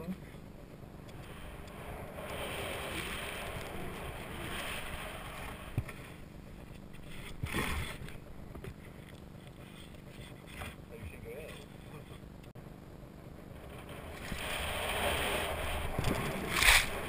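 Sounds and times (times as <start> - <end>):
snowboard gliding through powder: 1.2 - 8.3, 13.6 - 17.0.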